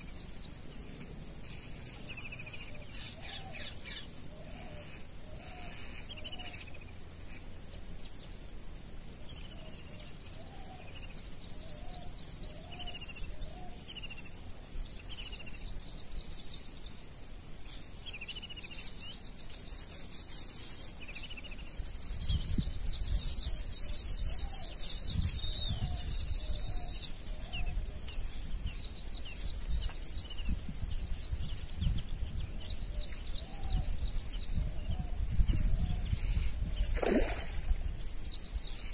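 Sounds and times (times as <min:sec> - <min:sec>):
birds chirping and trilling: 0:00.0 - 0:38.9
steady high-pitched hiss: 0:00.0 - 0:38.9
wind buffeting microphone: 0:21.8 - 0:38.9.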